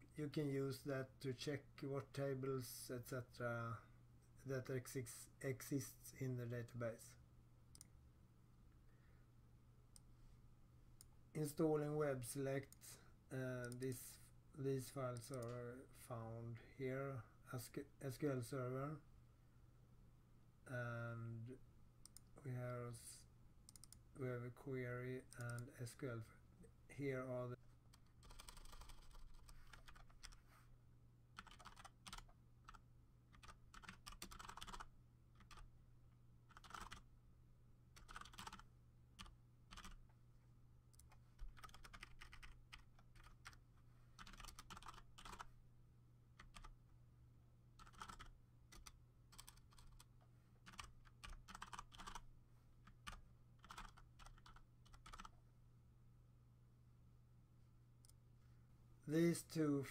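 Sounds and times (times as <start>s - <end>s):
low steady hum: 0.0s - 59.9s
typing on computer keyboard: 28.0s - 30.4s, 31.4s - 35.6s, 36.5s - 37.0s, 38.0s - 40.0s, 41.0s - 43.6s, 44.2s - 45.5s, 46.4s - 46.7s, 47.8s - 52.2s, 52.9s - 55.4s.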